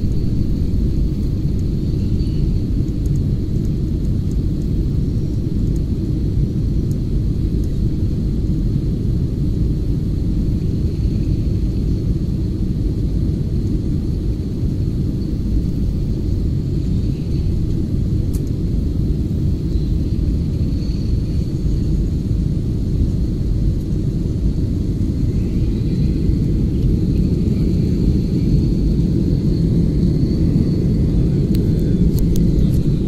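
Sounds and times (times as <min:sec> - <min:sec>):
faint high whine: 0:00.0 - 0:05.6, 0:06.4 - 0:33.0
jet engines rumbling: 0:00.0 - 0:33.0
rushing air: 0:24.3 - 0:33.0.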